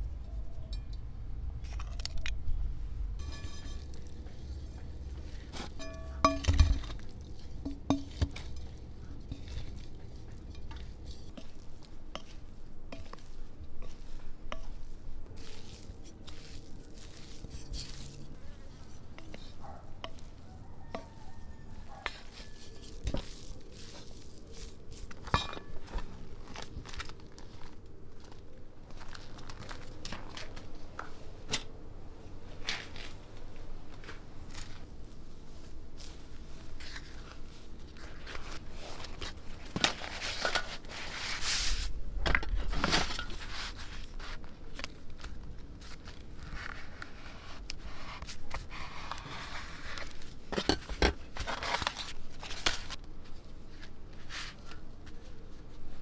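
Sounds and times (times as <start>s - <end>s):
wooden spoon scraping ceramic bowl: 15.4s - 24.2s.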